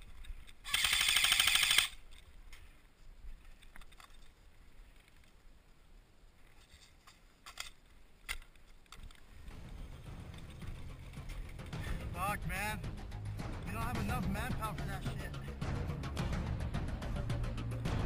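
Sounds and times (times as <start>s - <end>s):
airsoft gun full-auto burst: 0.6s - 2.0s.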